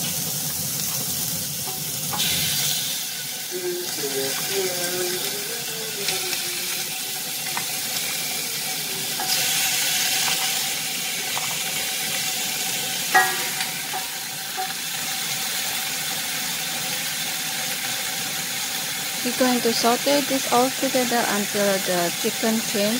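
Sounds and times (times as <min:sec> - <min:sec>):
chicken sizzling in hot oil: 0:00.0 - 0:22.9
metal clank with ring: 0:13.2 - 0:14.8.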